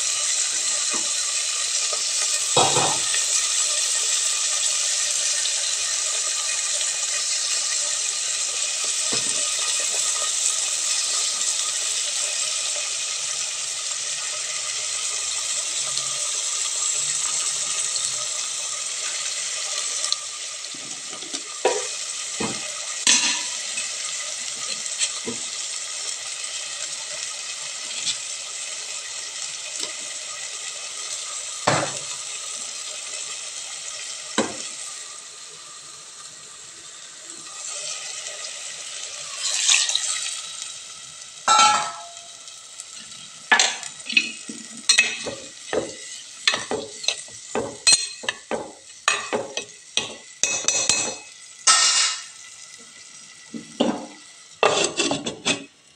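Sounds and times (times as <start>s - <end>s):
food sizzling in a pot: 0.0s - 55.9s
utensils knocking against pot: 2.6s - 3.2s, 41.5s - 42.2s, 43.5s - 52.3s, 53.8s - 55.7s.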